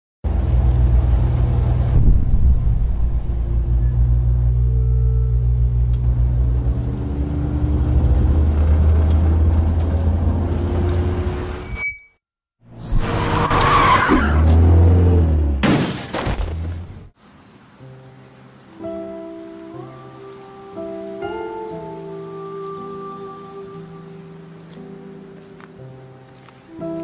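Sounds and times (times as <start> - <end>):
car engine and road drone: 0.2 - 11.8, 12.7 - 17.4
tyre screech: 7.6 - 14.8.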